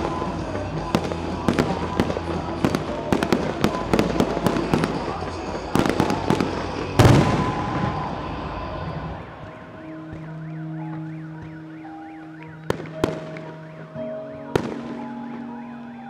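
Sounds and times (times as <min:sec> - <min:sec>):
fireworks bursting: 0:00.0 - 0:16.0
music: 0:00.0 - 0:16.0.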